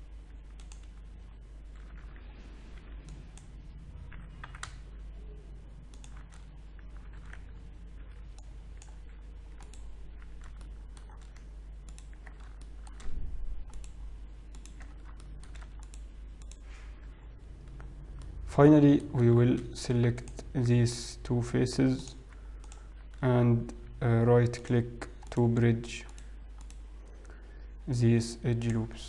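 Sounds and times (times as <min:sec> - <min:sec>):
steady low hum: 0:00.0 - 0:29.0
keyboard keys and mouse clicking: 0:00.5 - 0:01.1, 0:01.7 - 0:04.9, 0:05.8 - 0:16.6, 0:22.6 - 0:23.3, 0:25.0 - 0:26.8.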